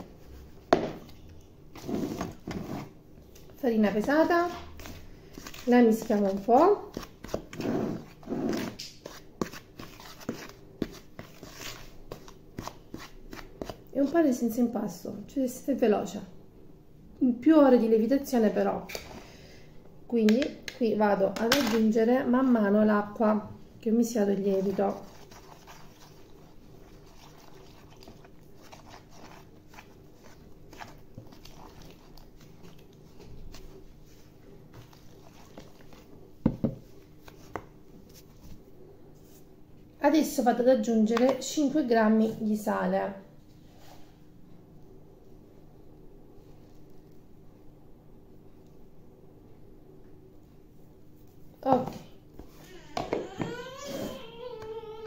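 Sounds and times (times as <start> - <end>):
spatula scraping plastic bowl: 1.8 - 3.0, 4.5 - 13.9, 24.4 - 32.9
spatula scraping flour in bowl: 24.4 - 32.8.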